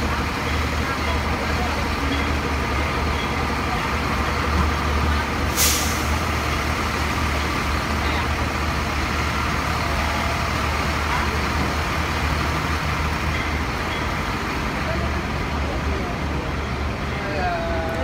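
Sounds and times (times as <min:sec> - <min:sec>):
diesel engines idling: 0:00.0 - 0:18.0
air hiss burst: 0:05.5 - 0:06.2.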